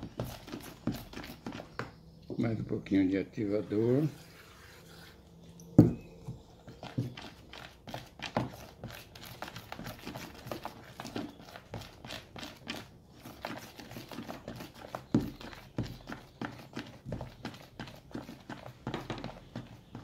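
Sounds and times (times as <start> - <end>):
wooden stick scraping plastic bowl: 0.0 - 1.8.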